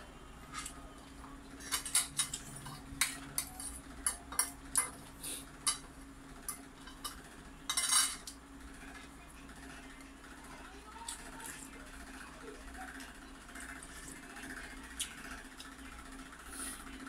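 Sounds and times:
cutlery clinking against a bowl: 1.6s - 8.4s.

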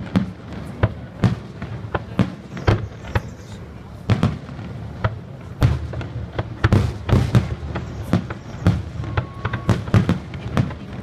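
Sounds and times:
fireworks booms and cracks: 0.0s - 11.0s.

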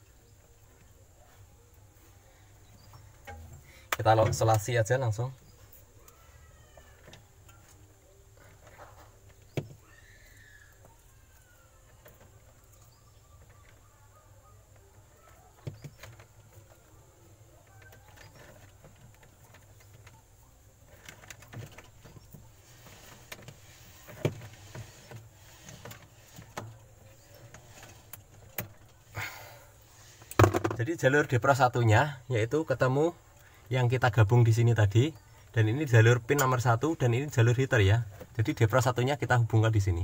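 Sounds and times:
faint chirps: 0.0s - 30.4s
electrical tape rustling and clicking: 14.6s - 29.4s.

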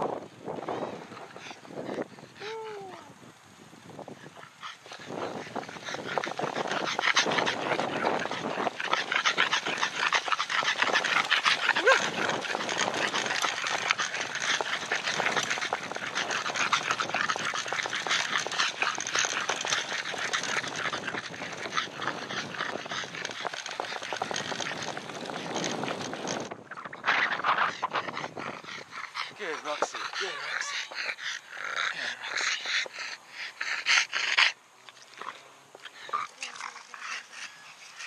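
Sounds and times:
wind and grass rustling: 0.0s - 38.0s
dog breathing hard and snuffling: 0.4s - 2.5s, 4.0s - 38.0s
dog whining: 11.2s - 13.5s, 29.6s - 31.0s.

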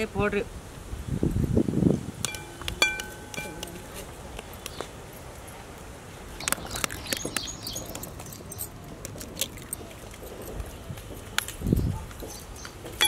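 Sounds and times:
eggshells cracking and peeling: 6.4s - 10.2s.

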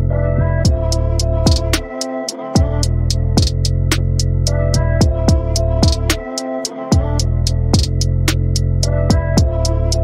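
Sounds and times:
deep kick drums: 0.7s - 0.9s, 3.4s - 3.7s, 5.0s - 6.1s
ticking percussion: 1.4s - 4.6s, 5.5s - 8.9s.

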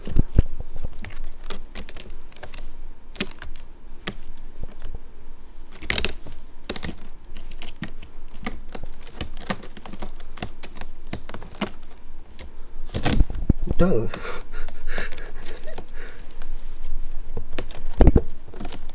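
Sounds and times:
kitten claws scratching straw bed: 0.0s - 4.9s, 5.6s - 13.3s.

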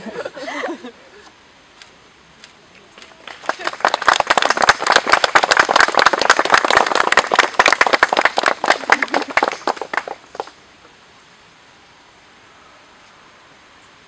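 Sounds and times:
crowd applauding: 3.0s - 10.6s.

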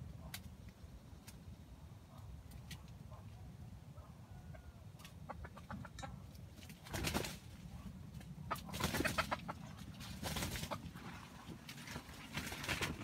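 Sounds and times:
rooster clucking: 5.2s - 6.2s, 8.4s - 9.8s.

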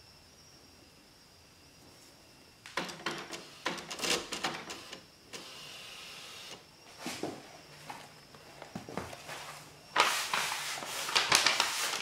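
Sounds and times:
printer mechanism clicking and clattering: 2.7s - 5.6s
printer carriage motor whirring: 2.7s - 6.6s.

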